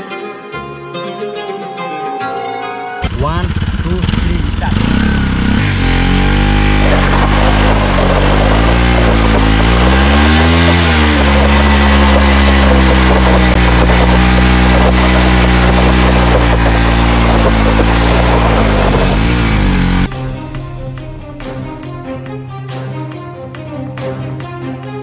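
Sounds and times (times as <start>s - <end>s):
motorcycle engine revving high: 3.0s - 20.2s
tyre spinning on gravel: 6.7s - 19.9s.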